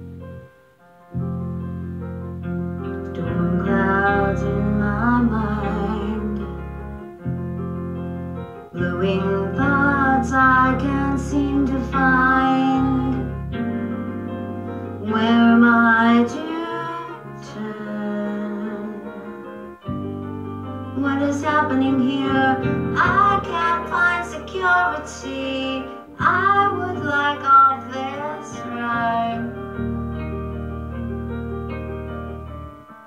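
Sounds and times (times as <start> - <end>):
keyboard accompaniment: 0.0 - 33.0
woman singing: 3.1 - 6.6, 8.7 - 13.4, 15.0 - 19.5, 21.0 - 29.7.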